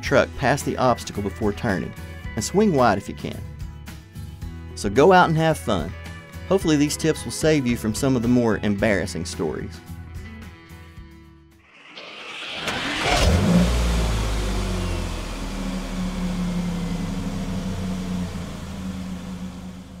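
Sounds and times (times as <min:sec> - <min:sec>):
vehicle engine rumbling: 0:11.8 - 0:20.0.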